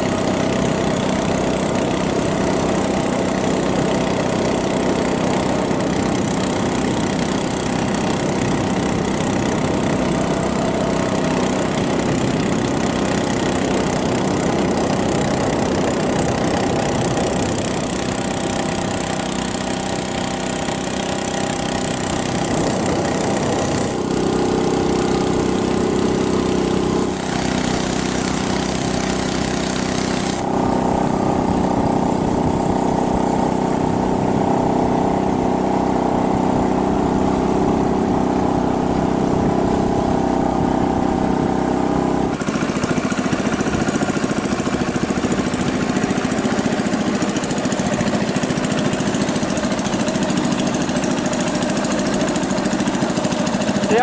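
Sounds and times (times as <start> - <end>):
boat motor running: 0.0 - 54.0
water rushing: 0.0 - 54.0
wind: 0.0 - 54.0.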